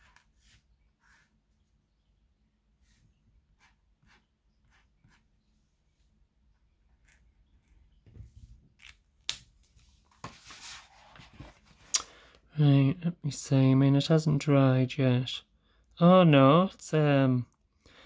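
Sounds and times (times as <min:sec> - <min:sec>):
marker scratching on paper: 0:00.0 - 0:01.4, 0:02.8 - 0:05.4
paper rustling: 0:09.6 - 0:11.9.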